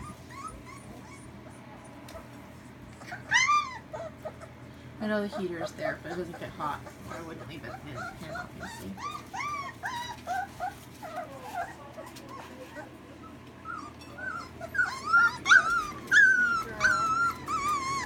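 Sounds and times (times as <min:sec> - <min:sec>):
puppies whining and yelping: 0:00.0 - 0:18.0.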